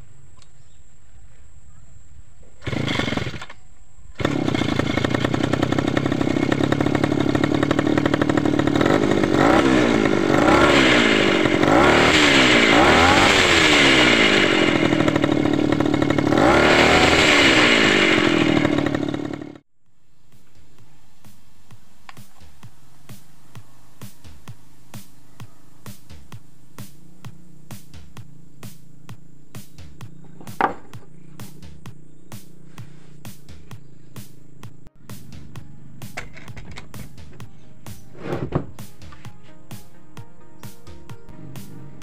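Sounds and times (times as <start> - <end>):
small petrol engine revving: 2.6 - 19.7
faint background music: 20.0 - 42.0.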